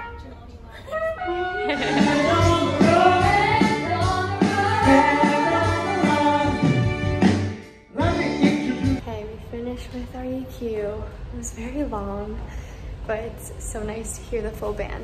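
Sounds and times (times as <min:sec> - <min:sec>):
group of people singing: 0:01.3 - 0:07.2
live band playing: 0:01.3 - 0:09.0.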